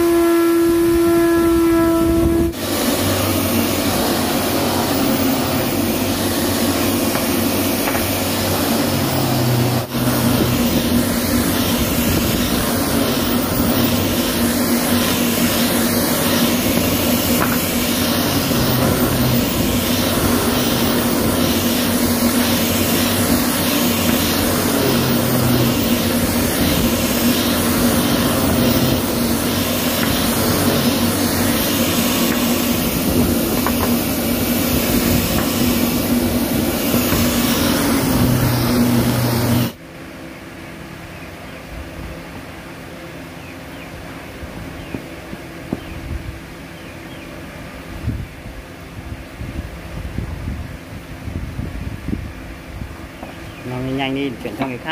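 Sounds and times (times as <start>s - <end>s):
angle grinder sanding wood: 0.0s - 39.8s, 53.7s - 54.9s.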